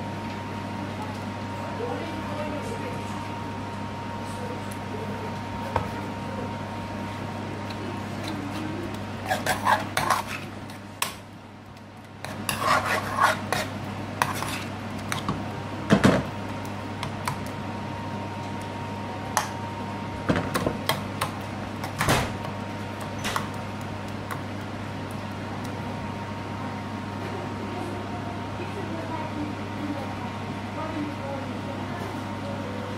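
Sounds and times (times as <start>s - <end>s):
steady low hum: 0.0s - 32.9s
metal spoon scraping frying pan: 9.2s - 10.5s, 12.2s - 15.2s.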